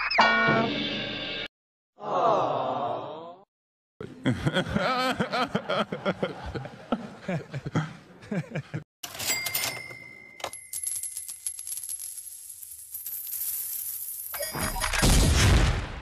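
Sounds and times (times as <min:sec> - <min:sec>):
man laughing: 0:04.0 - 0:08.9.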